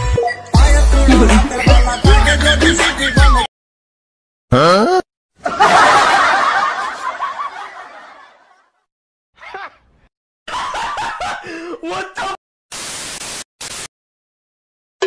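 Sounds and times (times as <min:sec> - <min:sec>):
people laughing: 0:05.4 - 0:08.7, 0:10.5 - 0:11.8.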